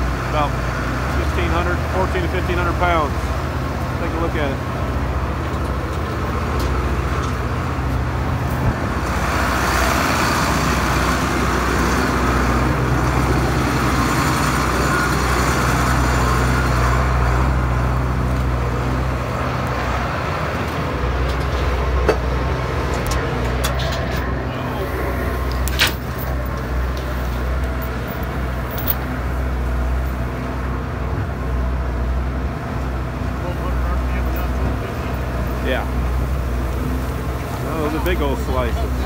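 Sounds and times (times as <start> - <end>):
tractor engine running steadily: 0.0 - 39.0.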